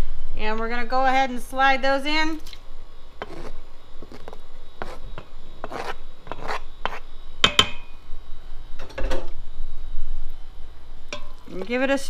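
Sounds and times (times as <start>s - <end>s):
spoon scraping cutting board: 3.2s - 5.0s, 5.6s - 7.0s.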